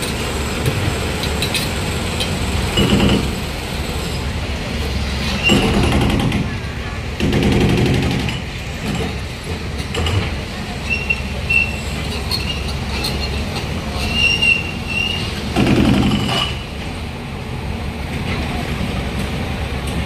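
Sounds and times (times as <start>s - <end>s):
diesel machinery rumbling: 0.0s - 20.0s
high-pitched metallic squeals: 10.8s - 15.5s.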